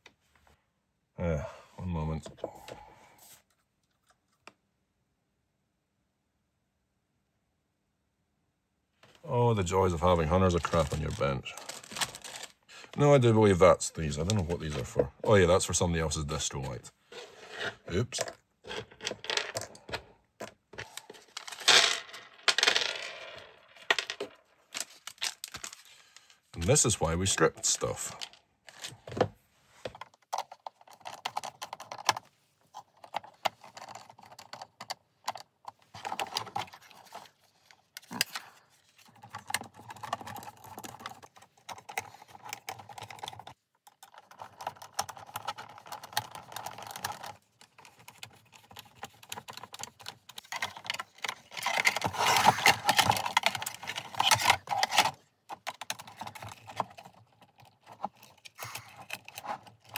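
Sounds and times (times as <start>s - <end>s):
plastic parts clicking and scraping: 10.0s - 13.0s, 16.4s - 59.9s.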